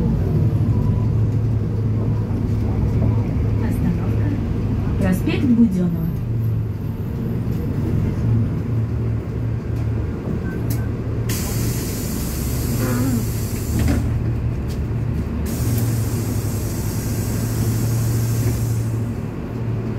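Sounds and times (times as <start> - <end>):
bus drivetrain hum: 0.0 - 19.9
compressed air hissing: 11.3 - 14.0, 15.4 - 19.1.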